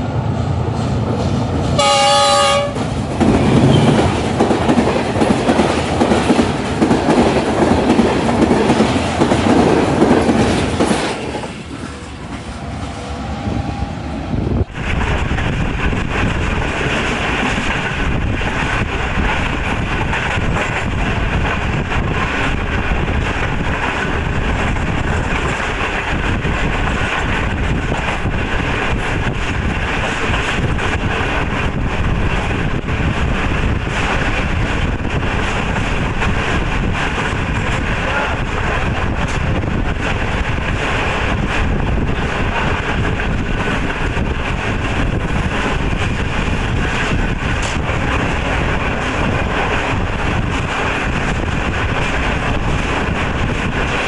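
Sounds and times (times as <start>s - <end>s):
moving train running noise: 0.0s - 54.0s
train rumbling past: 0.0s - 54.0s
train horn: 1.8s - 2.8s.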